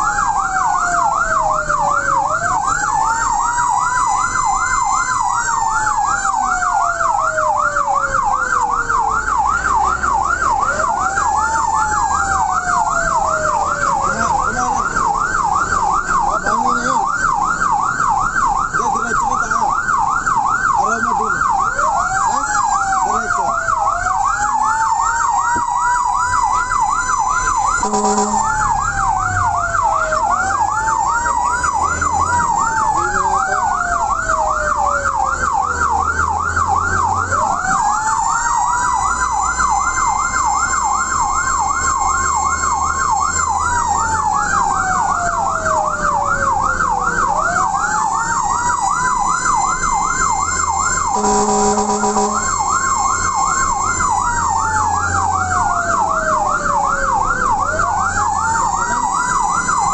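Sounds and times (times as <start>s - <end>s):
electronic siren yelp and wail: 0.0s - 59.9s
vehicle horn blast: 27.8s - 28.7s, 51.2s - 52.6s.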